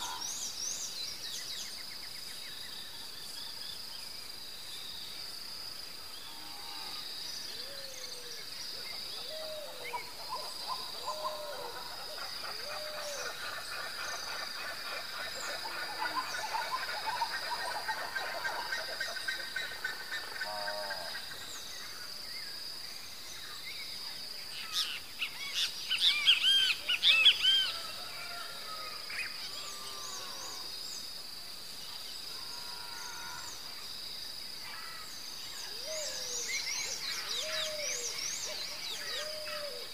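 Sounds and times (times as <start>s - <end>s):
high insect chorus: 0.0s - 39.9s
chirping calls and trills: 35.6s - 39.9s.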